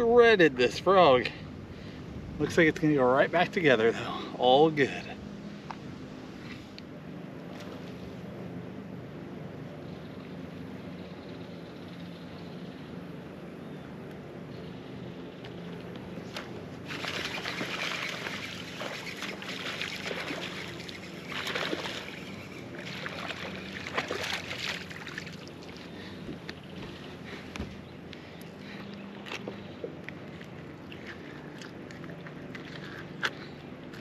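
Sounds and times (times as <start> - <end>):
fish splashing at surface: 16.9 - 25.8.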